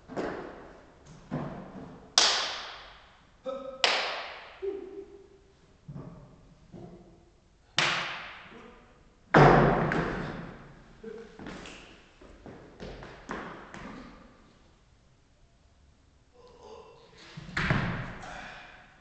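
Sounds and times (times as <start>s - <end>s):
loud knocks echoing in a hall: 7.8s - 8.6s, 9.3s - 10.7s, 17.5s - 18.5s.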